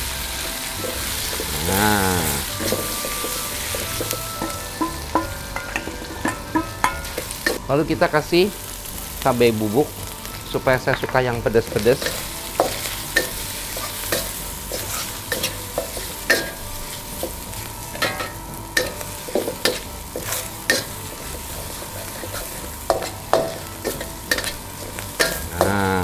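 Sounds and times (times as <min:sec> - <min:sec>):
shrimp sizzling in oil: 0:00.0 - 0:26.0
spatula scraping wok: 0:00.0 - 0:26.0
spatula clinking against pan: 0:02.5 - 0:07.6, 0:12.0 - 0:16.6, 0:17.2 - 0:25.8.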